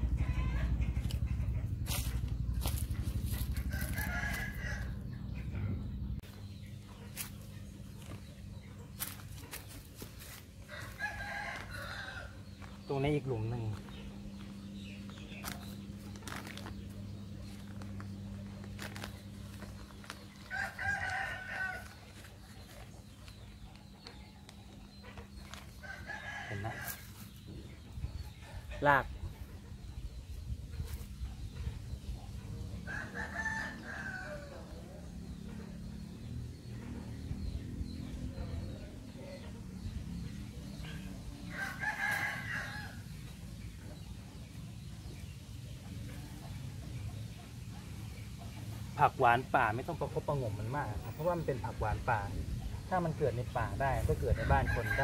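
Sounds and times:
low steady rumble: 0:00.0 - 0:09.8
rooster crowing: 0:03.6 - 0:05.0, 0:10.7 - 0:12.4, 0:20.4 - 0:21.9, 0:32.8 - 0:34.8, 0:41.5 - 0:43.0.

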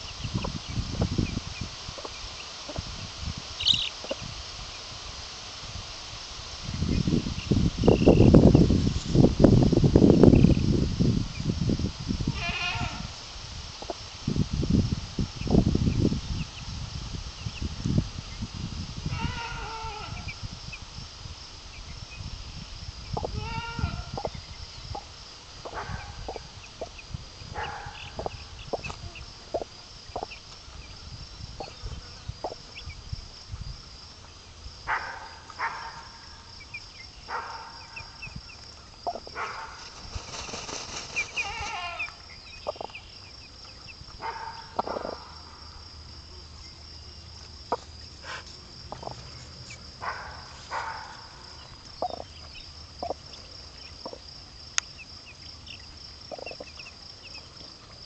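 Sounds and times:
chicks peeping: 0:00.0 - 0:04.8, 0:06.7 - 0:09.3, 0:21.7 - 0:33.6, 0:36.6 - 0:45.3, 0:47.7 - 0:57.6
hen clucking: 0:03.6 - 0:04.3, 0:23.1 - 0:27.0, 0:27.6 - 0:30.4, 0:39.0 - 0:39.3, 0:40.4 - 0:43.0, 0:48.9 - 0:49.2, 0:52.0 - 0:52.3, 0:53.0 - 0:53.3, 0:56.3 - 0:56.8
pulsing insect trill: 0:06.1 - 0:58.0.

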